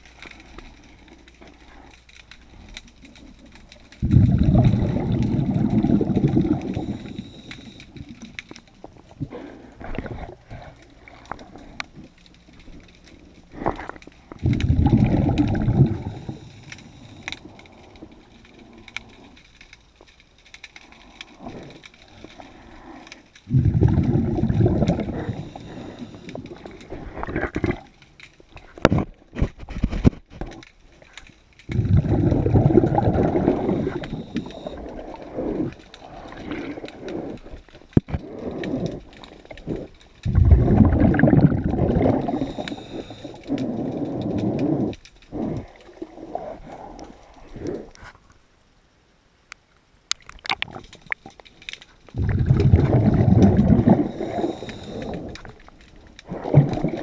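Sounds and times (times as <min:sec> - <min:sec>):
quiet breathing: 0:00.0 - 0:48.5, 0:51.1 - 0:57.0
regulator exhalation bubbles: 0:04.0 - 0:07.4, 0:13.6 - 0:16.7, 0:23.5 - 0:27.9, 0:31.7 - 0:37.5, 0:38.1 - 0:46.0, 0:52.1 - 0:55.6, 0:56.2 - 0:57.0.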